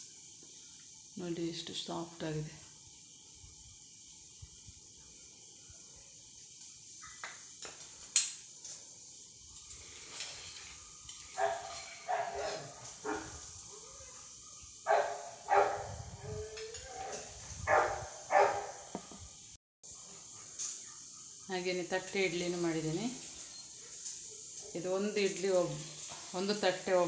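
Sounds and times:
dog barking: 11.4s - 18.9s.

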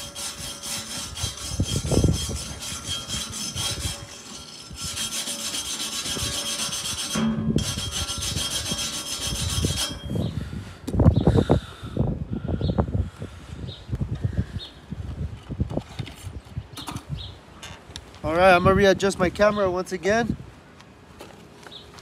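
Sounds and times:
wire brush scrubbing steel: 0.0s - 10.3s.

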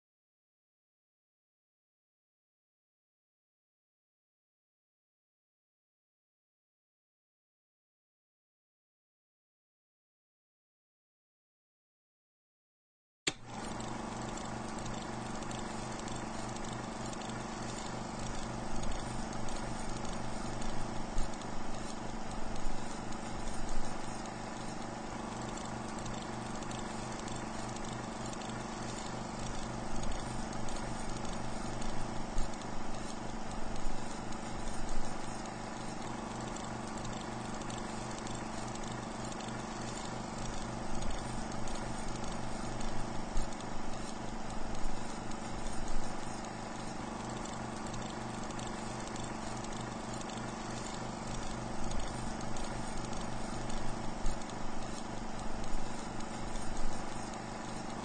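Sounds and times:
film projector running: 13.3s - 58.0s.

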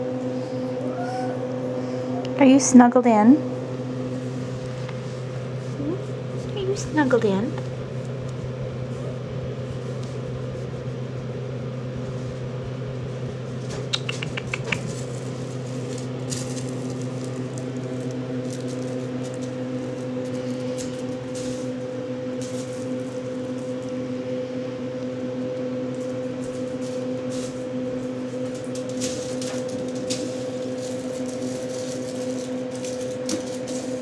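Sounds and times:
low background hum: 0.0s - 34.0s
quick run of clicks: 13.8s - 15.0s.

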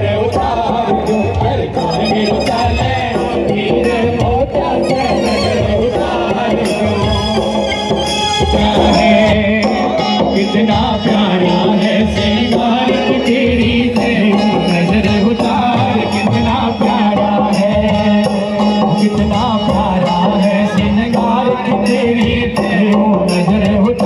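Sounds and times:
devotional song over loudspeakers: 0.0s - 24.0s
quick percussion beat: 0.0s - 24.0s.

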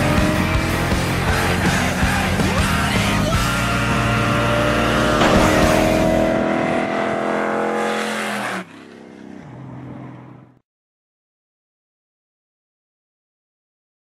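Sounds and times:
race car engine accelerating: 0.0s - 10.6s.

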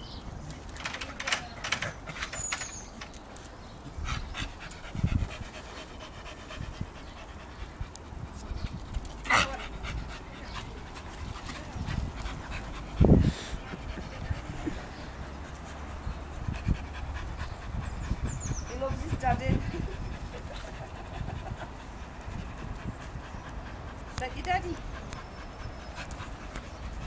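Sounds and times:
dog panting hard: 3.9s - 27.0s.

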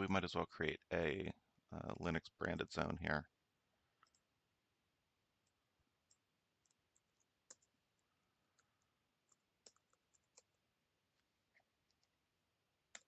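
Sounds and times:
keyboard and mouse clicks: 4.0s - 4.3s, 5.4s - 10.6s, 11.2s - 12.2s.

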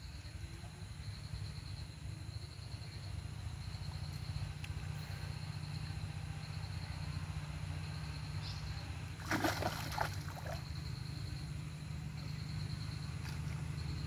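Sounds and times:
water splashing: 9.2s - 10.6s.

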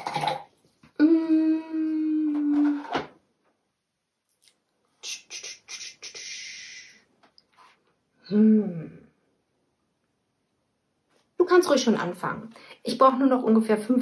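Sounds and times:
woman humming hmm: 1.0s - 2.8s, 8.2s - 9.2s
breathy hiss through lips: 5.0s - 7.1s.

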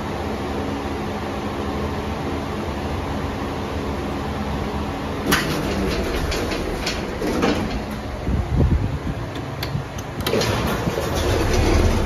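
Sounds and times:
lift low rumble: 5.1s - 12.0s
lift doors sliding closed: 5.2s - 12.0s
clicks and knocks: 5.3s - 8.3s.

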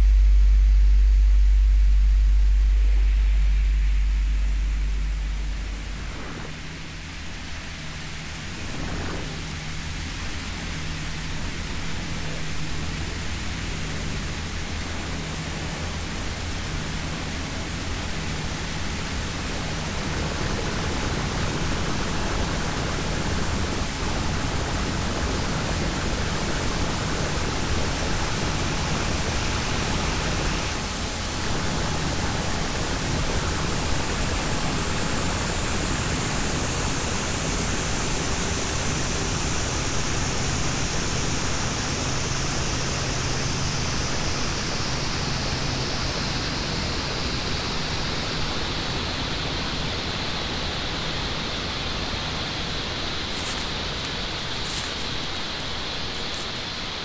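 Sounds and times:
faint low pulsing tone: 0.0s - 26.7s
loud deep hum: 0.0s - 49.1s
steady rushing hiss: 0.0s - 57.0s.

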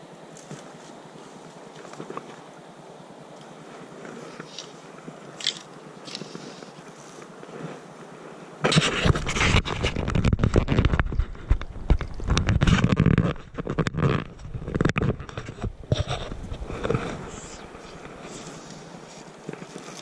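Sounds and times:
faint hiss: 0.0s - 8.9s, 16.4s - 20.0s
microphone handling noise: 8.6s - 18.8s.

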